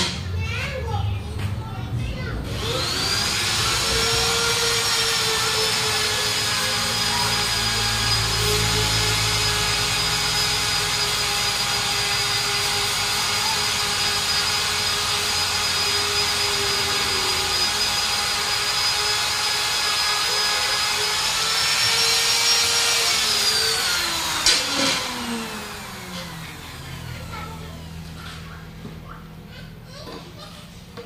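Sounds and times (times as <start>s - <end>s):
pneumatic buffing tool on rubber: 2.5s - 26.9s.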